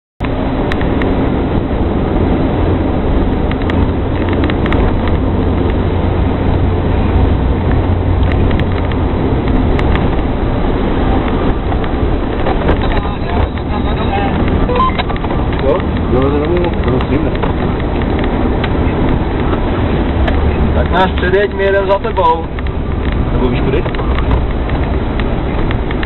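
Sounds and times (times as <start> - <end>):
engine and tyre drone: 0.2 - 26.0
light clicks and rattles: 7.7 - 10.3, 11.2 - 26.0.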